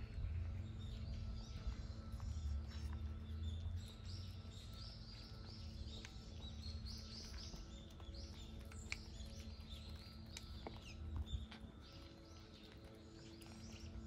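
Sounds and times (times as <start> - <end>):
low steady hum: 0.0 - 14.0
small birds chirping: 0.0 - 14.0.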